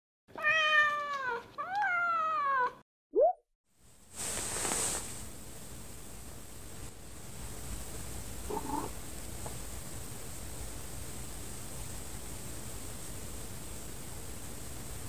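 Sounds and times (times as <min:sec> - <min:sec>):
cat meowing: 0:00.3 - 0:02.8, 0:08.5 - 0:08.9
steady background hiss: 0:03.8 - 0:15.0.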